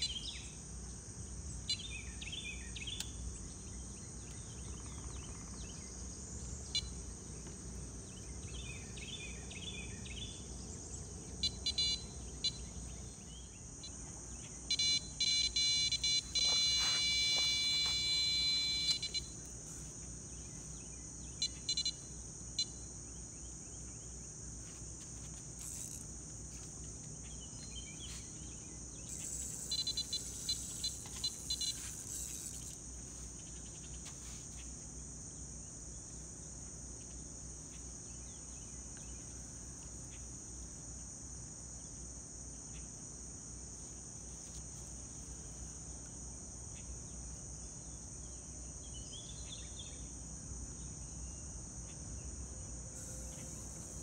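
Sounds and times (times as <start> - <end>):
insect chirping: 0.0 - 54.0
insects droning: 0.0 - 54.0
bite alarm tone: 11.4 - 12.6, 14.7 - 19.4.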